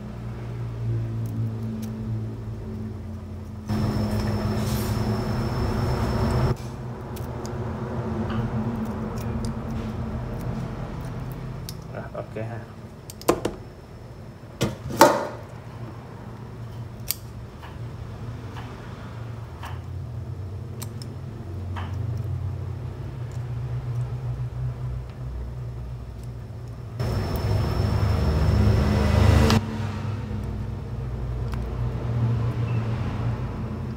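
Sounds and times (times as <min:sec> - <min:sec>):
loud rushing noise: 0:27.0 - 0:30.4.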